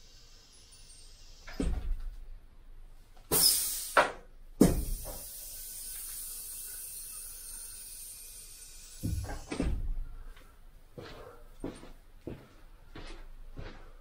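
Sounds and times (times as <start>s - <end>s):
hydraulic hiss: 0.0s - 2.0s, 3.3s - 10.2s.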